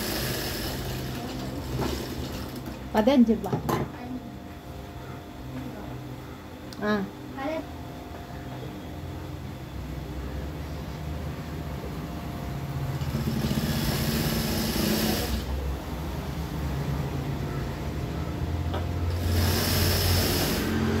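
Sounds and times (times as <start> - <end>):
sewing machine stitching: 13.0 - 15.5, 19.1 - 21.0.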